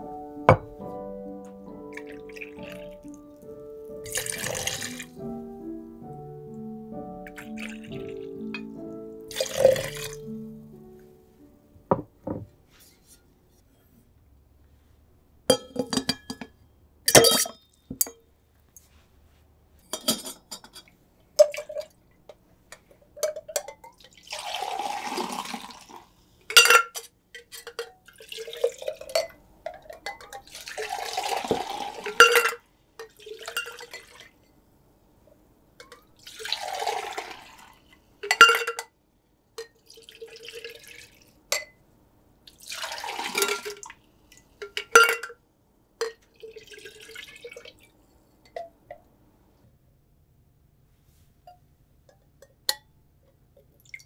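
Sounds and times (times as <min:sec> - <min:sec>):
glassware clinking: 0:00.5 - 0:00.8, 0:07.3 - 0:10.2, 0:15.5 - 0:18.2, 0:19.9 - 0:22.0, 0:23.2 - 0:24.1, 0:26.5 - 0:28.1, 0:28.8 - 0:34.2, 0:38.2 - 0:38.9, 0:41.5 - 0:41.8, 0:43.3 - 0:43.8, 0:44.6 - 0:45.4, 0:46.0 - 0:46.3
liquid pouring into glass: 0:01.8 - 0:03.2, 0:04.0 - 0:05.1, 0:07.3 - 0:08.3, 0:09.3 - 0:10.3, 0:24.0 - 0:26.0, 0:30.5 - 0:32.5, 0:36.2 - 0:37.8, 0:39.9 - 0:41.2, 0:42.5 - 0:43.9, 0:46.3 - 0:47.9.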